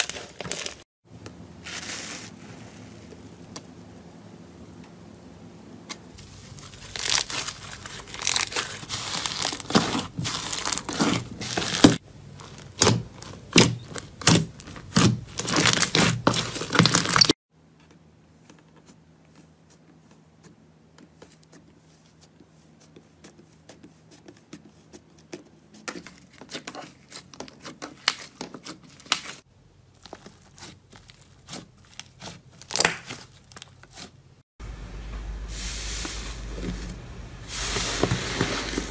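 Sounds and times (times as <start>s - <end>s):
slime squishing: 6.2s - 17.3s, 21.0s - 34.2s
slime crackling and popping: 6.6s - 17.3s, 30.0s - 34.1s.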